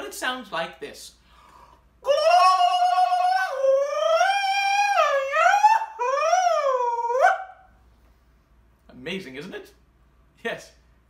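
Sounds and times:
man imitating peacock call: 2.0s - 7.6s.

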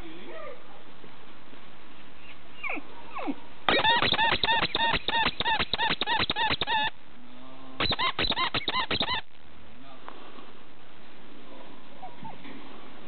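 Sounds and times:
background hiss: 0.0s - 13.0s
puppies yipping: 2.2s - 6.9s, 7.8s - 9.3s
puppy squeaks and whimpers: 2.2s - 6.9s, 7.8s - 9.3s, 12.0s - 12.4s.

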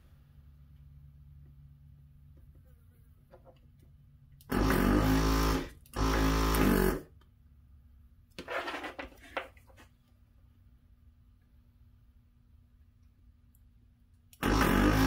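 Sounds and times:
vacuum pump buzzing with air hiss: 4.4s - 7.1s, 14.4s - 15.0s.

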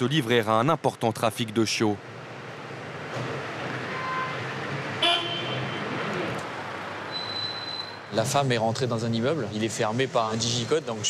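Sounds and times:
city street traffic: 0.0s - 11.0s
short horn toot: 5.0s - 6.0s.

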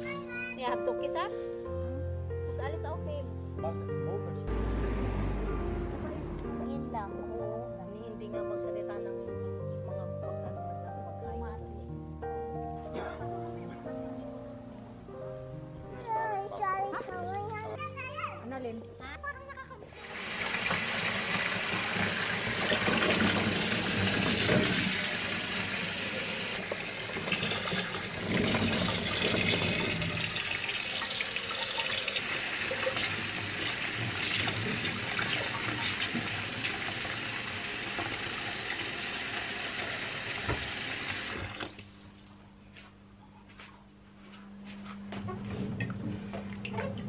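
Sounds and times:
water splashing: 20.0s - 37.0s
tap water running into sink: 20.0s - 41.8s.

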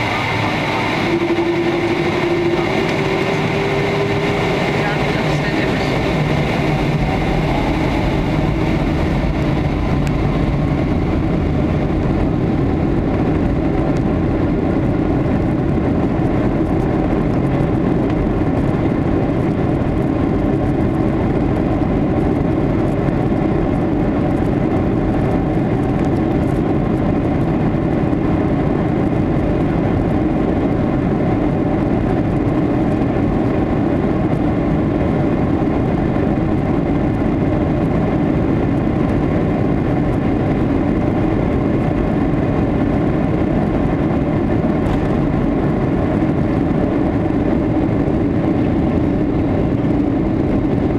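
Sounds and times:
aircraft cabin noise: 0.0s - 50.9s
jet engine rumble: 0.0s - 50.9s.

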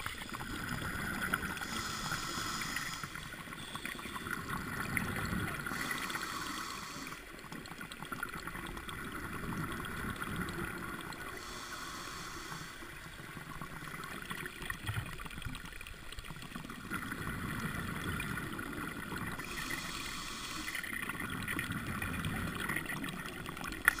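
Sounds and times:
muffled underwater gurgling: 0.0s - 15.4s, 16.2s - 24.0s.

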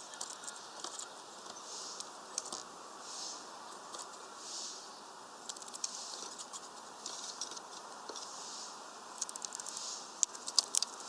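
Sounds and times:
beaks tapping on nuts: 5.4s - 8.3s, 9.1s - 11.0s.

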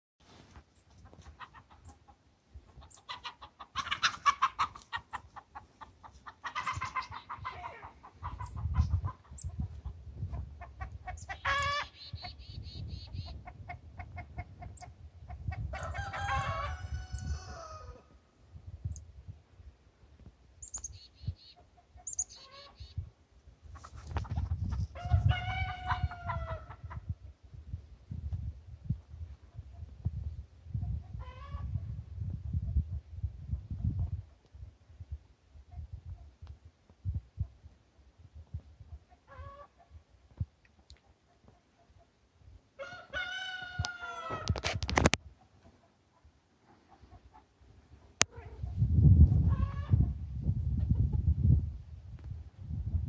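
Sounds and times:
chickens clucking and squawking: 0.9s - 19.0s, 21.1s - 27.4s, 28.9s - 34.5s, 35.6s - 36.5s, 38.4s - 40.4s, 41.0s - 51.7s
rooster crowing: 15.8s - 18.0s, 42.8s - 44.6s.

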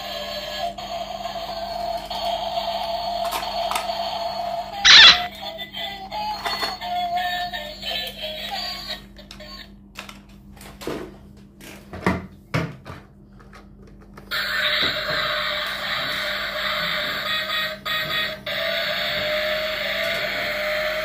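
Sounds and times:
electronic toy melody: 4.8s - 5.3s.

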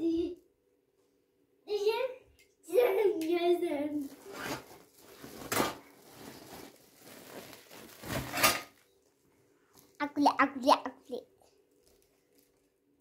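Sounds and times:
sack rustling: 4.0s - 8.6s.

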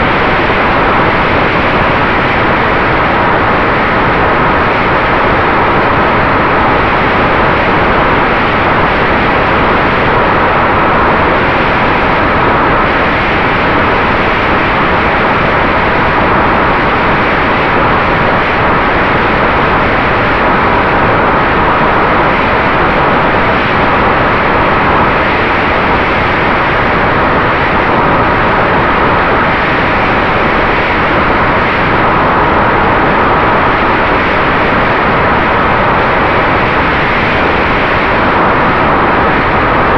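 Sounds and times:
faint steady whine: 0.0s - 39.9s.

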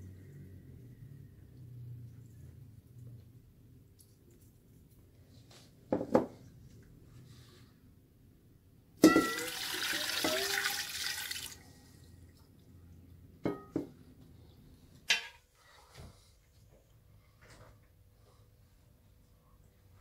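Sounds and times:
water pouring into a metal pot: 9.0s - 11.8s.

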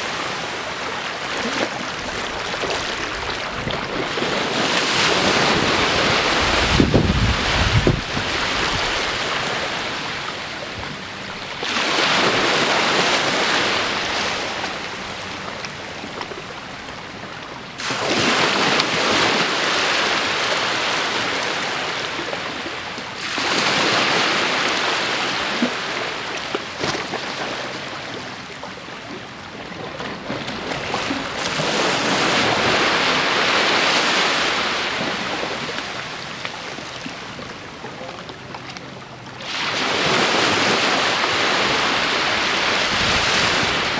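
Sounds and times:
small waves breaking on beach: 0.0s - 43.9s.

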